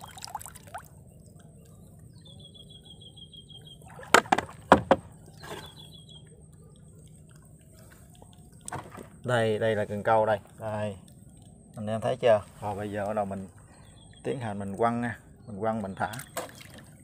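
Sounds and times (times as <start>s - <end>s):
plastic bottle floats knocking: 4.0s - 5.6s.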